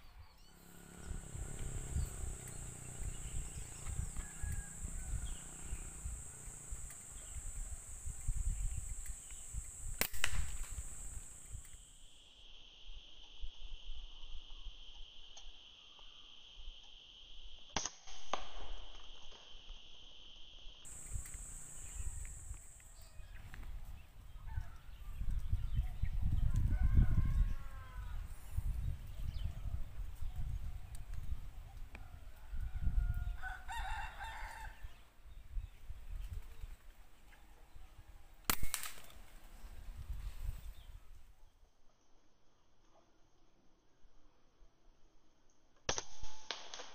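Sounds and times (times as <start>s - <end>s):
insect drone: 0.1s - 35.6s
rooster crowing: 0.5s - 8.2s, 20.9s - 28.7s, 31.9s - 35.0s
low rumbling noise: 0.5s - 11.9s, 20.9s - 26.5s
air rifle shot: 8.9s - 11.6s, 38.5s - 39.3s
sharp click: 8.9s - 11.8s, 38.5s - 39.2s.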